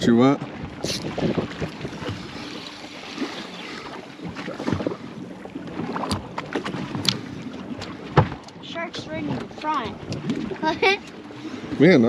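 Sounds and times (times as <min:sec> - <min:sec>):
water lapping against hull: 0:00.0 - 0:12.0
wind on microphone: 0:00.4 - 0:05.0.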